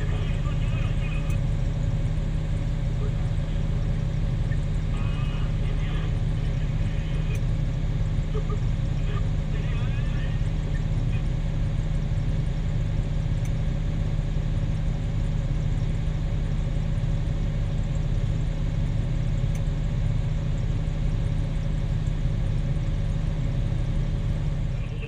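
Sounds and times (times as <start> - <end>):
heavy diesel engines droning: 0.0 - 25.0
steady hum: 0.0 - 25.0.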